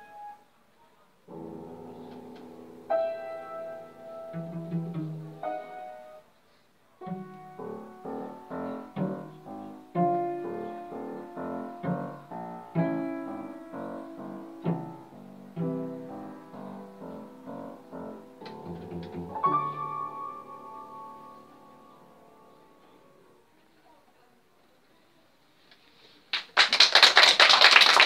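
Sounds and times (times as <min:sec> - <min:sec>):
piano chords: 0:00.0 - 0:00.5, 0:01.3 - 0:06.3, 0:07.0 - 0:23.4
cello playing: 0:04.2 - 0:05.5.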